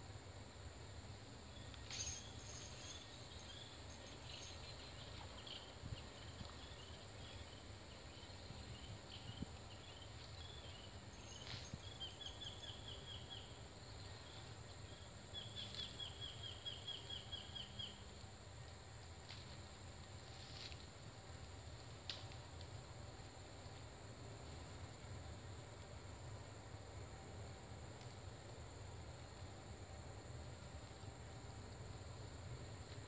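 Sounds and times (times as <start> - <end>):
high insect drone: 0.0 - 33.0.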